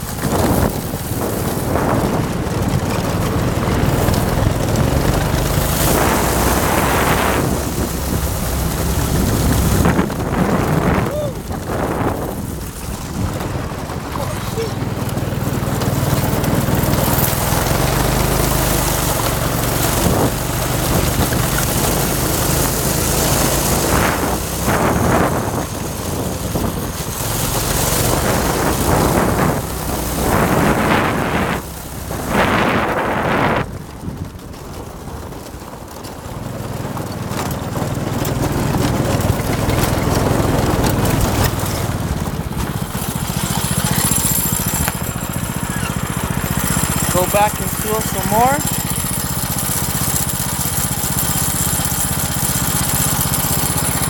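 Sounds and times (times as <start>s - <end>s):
wind on microphone: 0.0s - 36.3s
go-kart engine running: 0.0s - 54.0s.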